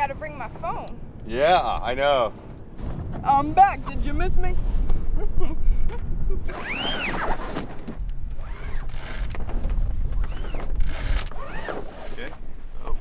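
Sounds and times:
rope squeaking through winch: 0:06.5 - 0:07.8, 0:08.4 - 0:09.4, 0:10.2 - 0:12.4
winch ratchet clicking: 0:08.5 - 0:09.4, 0:10.8 - 0:12.2.

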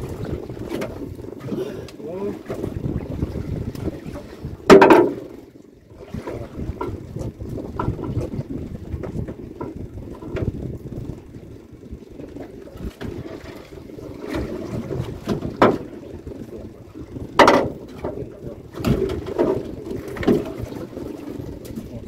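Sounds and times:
water slapping against boat hull: 0:00.0 - 0:11.2, 0:12.0 - 0:22.0
wind buffeting microphone: 0:00.0 - 0:22.0
sharp knocks: 0:04.7 - 0:05.2, 0:17.4 - 0:17.8.

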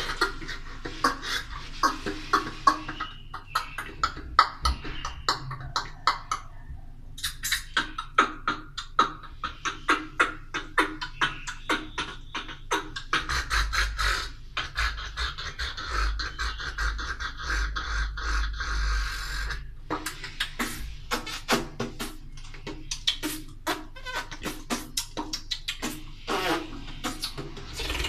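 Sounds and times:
beatboxing clicks and beats: 0:00.0 - 0:06.6, 0:07.2 - 0:28.0.

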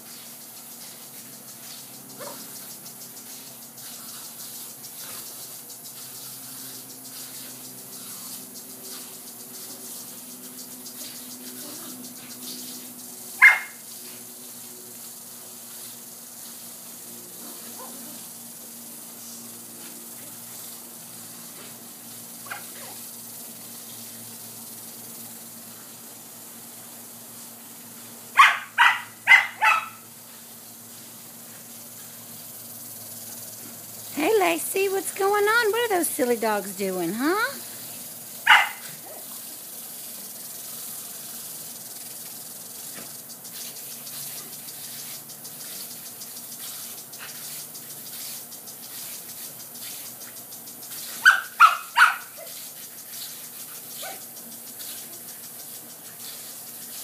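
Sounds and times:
garden sprinkler hissing: 0:00.0 - 0:57.0
puppies barking: 0:13.4 - 0:13.8, 0:28.4 - 0:30.1, 0:38.4 - 0:39.2, 0:51.2 - 0:52.5.

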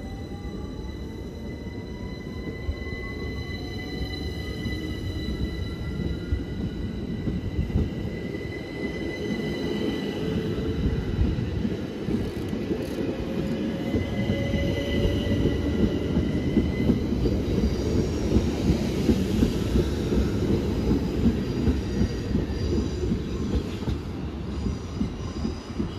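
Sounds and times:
wheels rumbling on rail: 0:04.5 - 0:25.9
rail joint clicks: 0:05.9 - 0:25.9
train traction motors whining: 0:12.0 - 0:16.7.

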